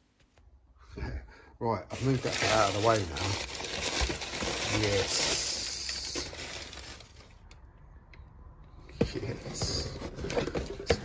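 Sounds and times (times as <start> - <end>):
cardboard packing rustling: 1.9 - 7.4, 9.0 - 11.0.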